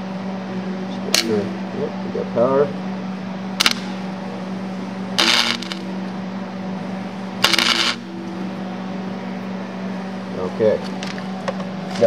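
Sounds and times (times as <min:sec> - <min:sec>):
steady low hum: 0:00.0 - 0:12.0
welder arc crackling: 0:03.6 - 0:04.0, 0:05.2 - 0:05.9, 0:07.4 - 0:08.1.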